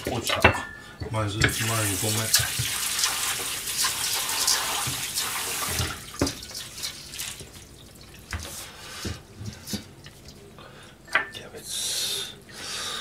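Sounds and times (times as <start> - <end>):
kitchen tap running: 0.0 - 10.4.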